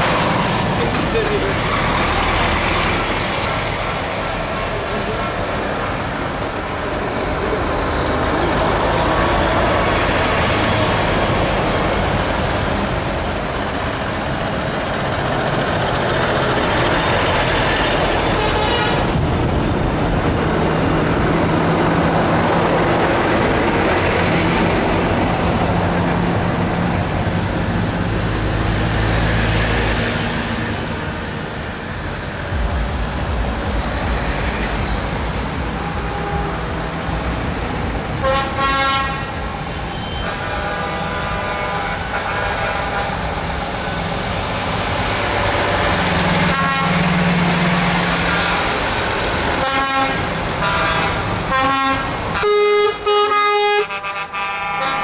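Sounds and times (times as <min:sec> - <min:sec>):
heavy lorries driving past: 0:00.0 - 0:55.0.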